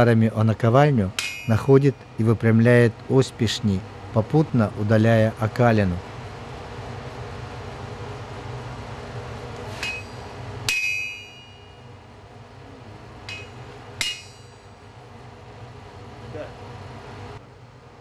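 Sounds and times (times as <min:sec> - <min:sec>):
metal clanging on anvil: 0:01.2 - 0:01.8, 0:09.7 - 0:11.8, 0:13.2 - 0:14.7.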